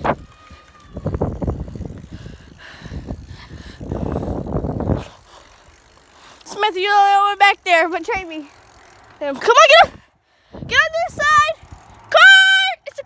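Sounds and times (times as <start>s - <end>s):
wind buffeting microphone: 0.0s - 6.0s, 9.0s - 12.2s.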